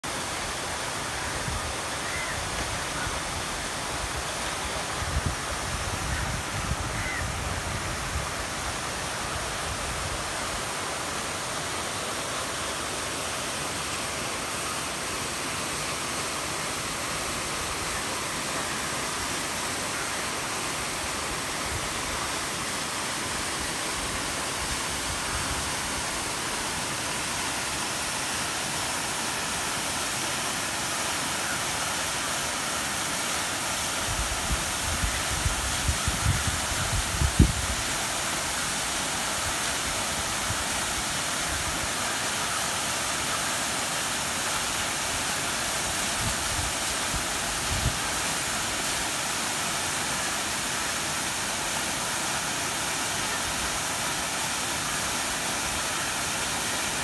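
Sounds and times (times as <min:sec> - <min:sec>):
water flowing over rocks: 0:00.0 - 0:57.0.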